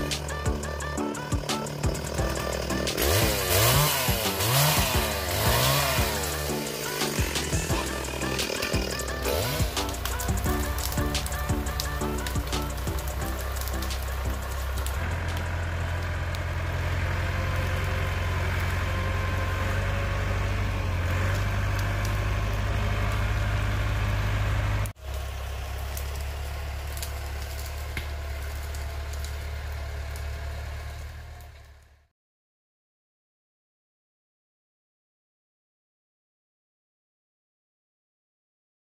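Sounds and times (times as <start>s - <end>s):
tractor engine low hum: 0.0s - 32.1s.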